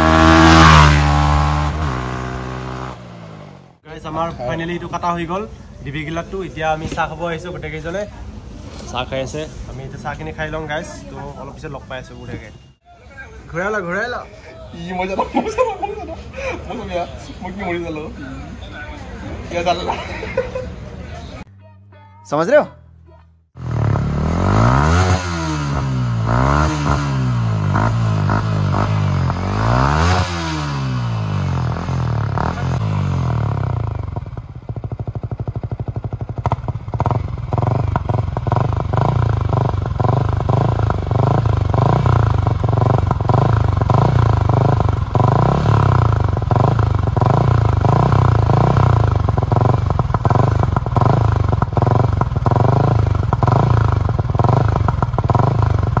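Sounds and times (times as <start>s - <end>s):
motorcycle engine revving: 0.0s - 3.8s, 23.5s - 56.0s
exhaust crackles: 23.6s - 56.0s
motorcycle engine idling: 31.0s - 56.0s.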